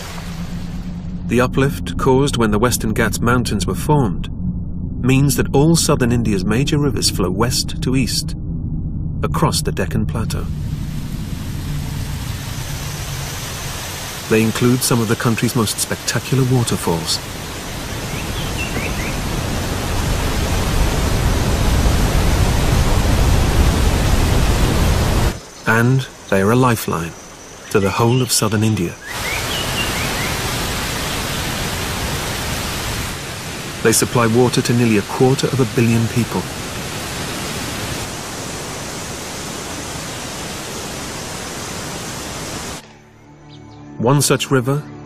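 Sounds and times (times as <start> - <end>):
waterfall rushing: 0.0 - 0.9, 10.2 - 42.8.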